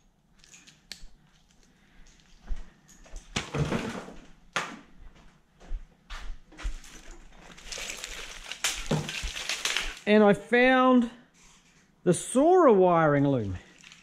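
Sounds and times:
clicks and knocks of small parts: 0:00.4 - 0:02.3, 0:07.0 - 0:10.0
rustling scrape of wiring: 0:07.0 - 0:10.0.

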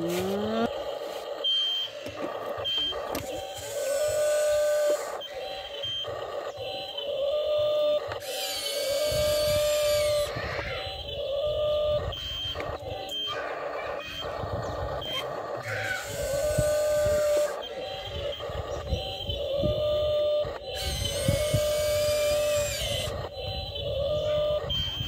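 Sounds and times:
small electric motors whirring: 0:00.0 - 0:00.7, 0:03.1 - 0:05.7, 0:07.3 - 0:11.8, 0:13.9 - 0:25.0.

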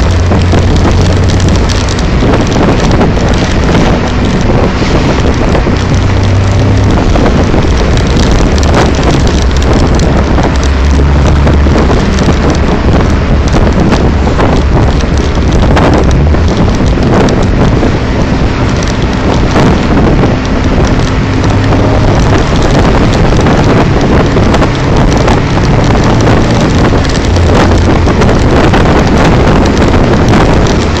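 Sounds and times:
car engine: 0:00.0 - 0:31.0
road noise: 0:00.0 - 0:31.0
wind buffeting microphone: 0:00.0 - 0:31.0.

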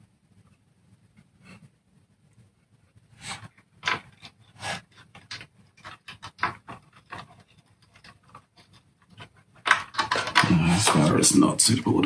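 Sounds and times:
wire rustling and scraping: 0:03.0 - 0:11.2.

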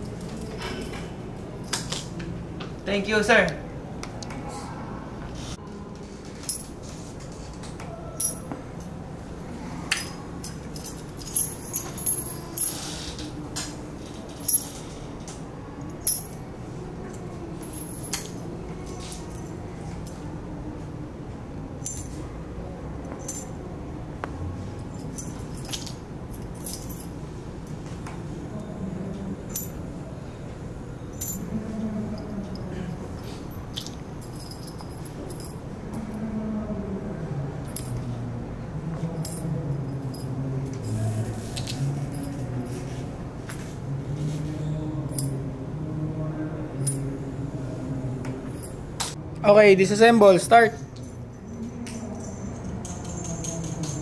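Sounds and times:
faint low hum: 0:00.0 - 0:49.5
metal bolts and nuts clinking: 0:08.2 - 0:09.0, 0:09.9 - 0:13.2, 0:14.0 - 0:15.0, 0:15.9 - 0:16.4, 0:17.6 - 0:20.2, 0:23.1 - 0:23.6, 0:24.9 - 0:27.2, 0:31.2 - 0:31.5, 0:32.5 - 0:36.1, 0:37.7 - 0:38.0, 0:50.6 - 0:54.0.

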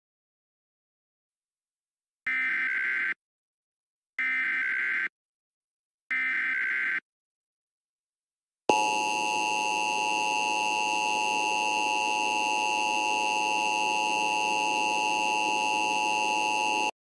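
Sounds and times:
harsh two-tone alarm: 0:04.2 - 0:05.1, 0:06.1 - 0:07.0, 0:08.7 - 0:17.0.

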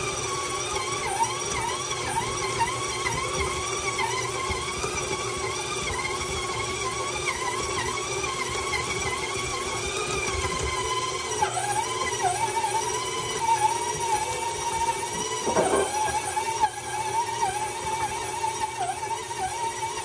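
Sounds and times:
stand mixer motor whine: 0:00.0 - 0:20.0
thump: 0:15.4 - 0:16.2.

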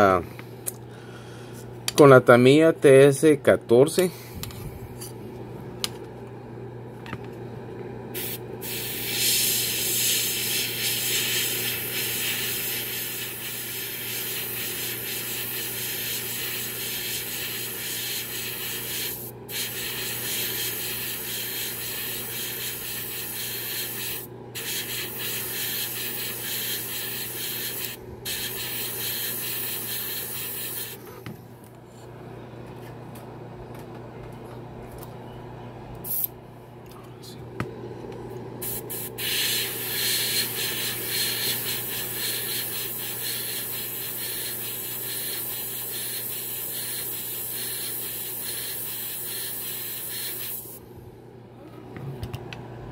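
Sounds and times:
steady low hum: 0:00.0 - 0:52.9
spray paint hissing: 0:08.2 - 0:31.0, 0:38.6 - 0:50.8.

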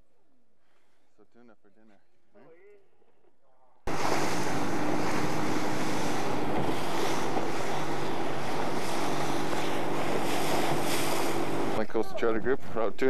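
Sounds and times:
water washing past hull: 0:03.9 - 0:12.8
outboard motor humming: 0:03.9 - 0:13.0.

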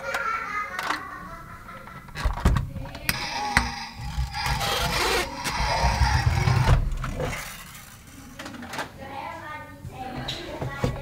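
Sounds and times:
plastic wheels rolling on tabletop: 0:01.7 - 0:09.0.

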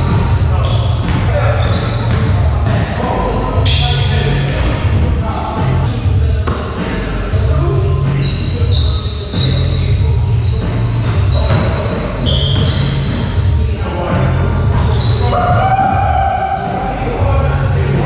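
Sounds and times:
basketball bouncing: 0:00.1 - 0:02.9
sneaker squeaks on court: 0:00.2 - 0:05.8, 0:08.2 - 0:18.0.

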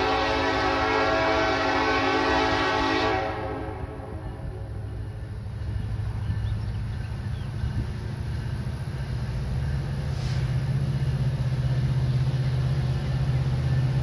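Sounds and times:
diesel locomotive rumbling: 0:00.0 - 0:14.0
brief hiss: 0:10.1 - 0:10.6.

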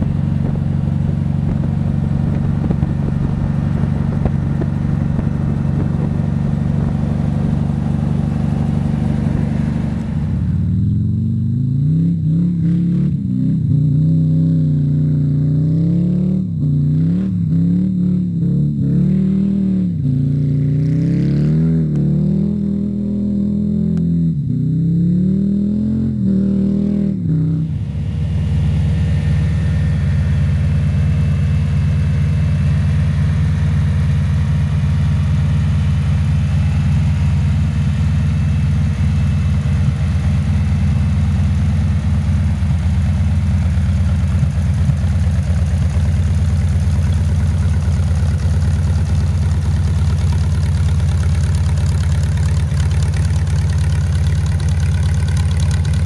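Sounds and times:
trike engine idling: 0:00.0 - 0:11.1, 0:27.7 - 0:56.0.

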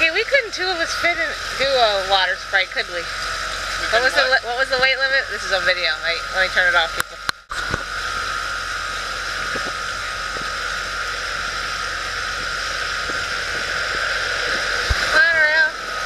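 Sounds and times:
outboard motor running: 0:00.0 - 0:16.0
wind and water rushing: 0:12.3 - 0:16.0.

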